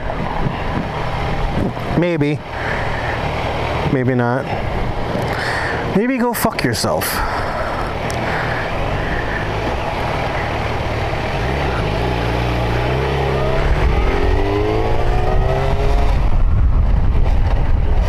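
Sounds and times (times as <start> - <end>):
wind noise on microphone: 0.0 - 1.9, 13.6 - 18.0
motorcycle engine revving: 7.4 - 18.0.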